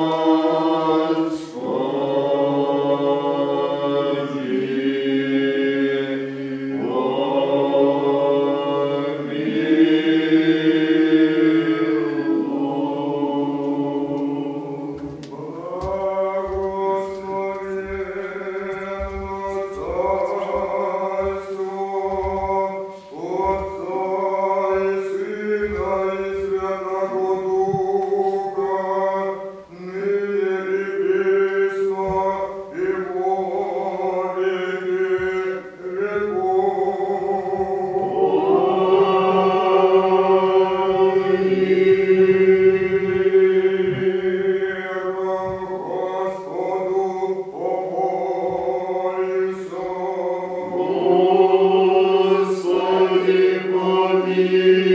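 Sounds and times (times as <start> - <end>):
choir chanting: 0.0 - 54.9.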